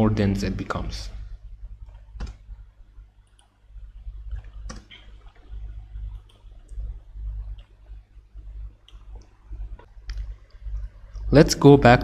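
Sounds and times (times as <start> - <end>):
low steady hum: 0.0 - 12.0
computer mouse clicking: 1.8 - 2.4, 3.2 - 3.6, 4.2 - 11.2.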